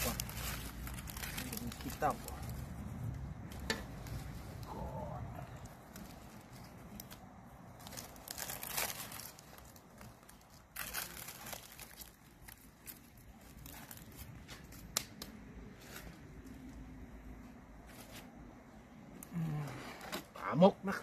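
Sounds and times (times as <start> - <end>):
dry leaves crinkling and tearing: 0.0 - 16.6.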